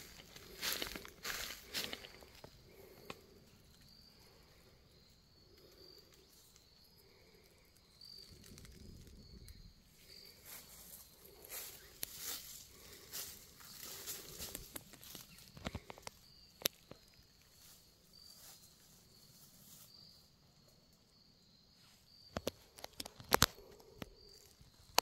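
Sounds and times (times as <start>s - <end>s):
footsteps crunching through dry leaves: 0.0s - 3.0s, 10.4s - 15.6s
high insect chirps: 0.0s - 25.0s.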